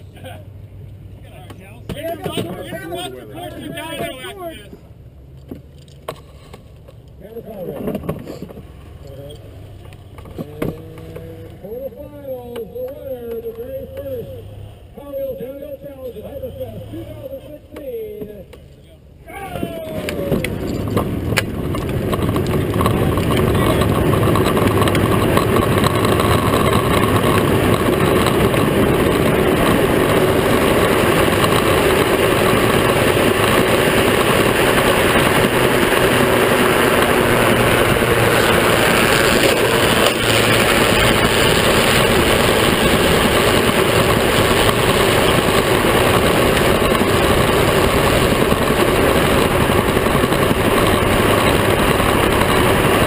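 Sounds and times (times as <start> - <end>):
toy car drivetrain and wind noise: 19.4 - 53.0.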